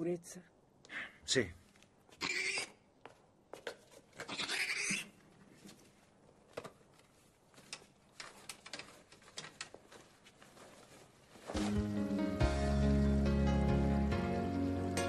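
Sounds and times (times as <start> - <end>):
items clicking and knocking on shelves: 5.6 - 11.8.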